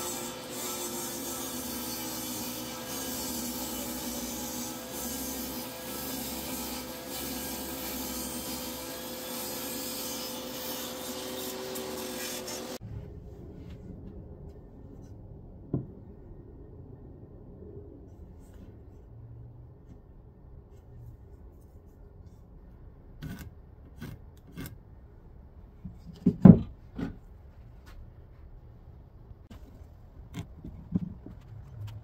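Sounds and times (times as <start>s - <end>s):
table saw cutting wood: 0.0s - 12.8s.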